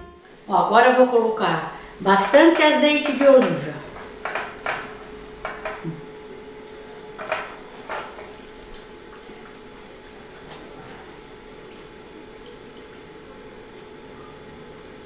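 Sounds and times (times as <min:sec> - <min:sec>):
faint steady hum: 0:00.0 - 0:15.0
spatula tapping metal bowl: 0:02.4 - 0:03.6, 0:04.2 - 0:05.9.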